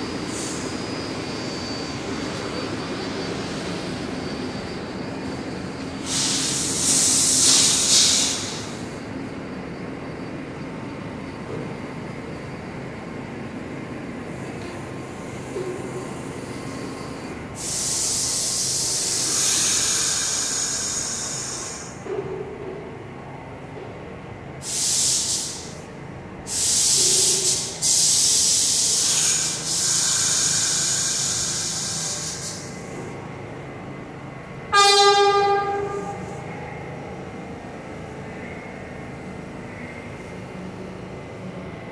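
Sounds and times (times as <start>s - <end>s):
train air brakes hissing: 0.0s - 9.1s, 15.4s - 22.1s, 24.5s - 33.3s, 34.7s - 37.0s.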